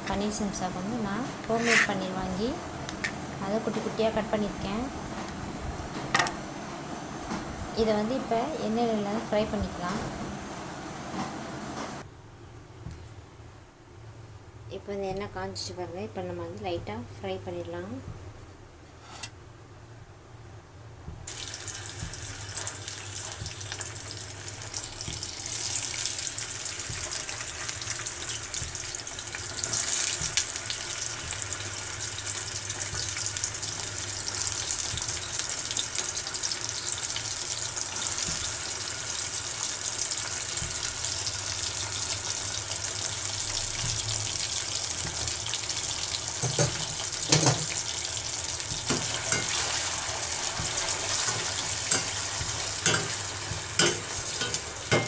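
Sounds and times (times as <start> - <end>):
paneer sizzling in hot oil: 0.9 - 2.5, 21.3 - 55.0.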